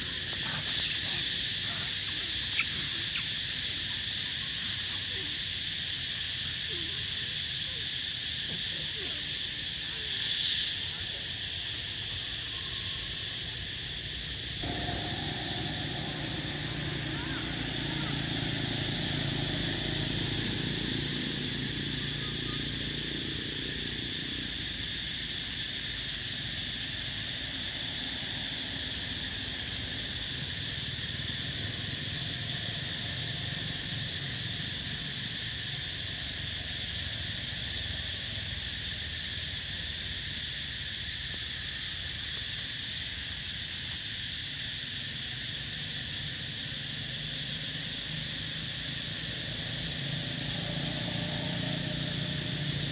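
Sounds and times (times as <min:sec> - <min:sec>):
insects buzzing high-pitched: 0:00.0 - 0:52.9
low hum: 0:14.6 - 0:23.0.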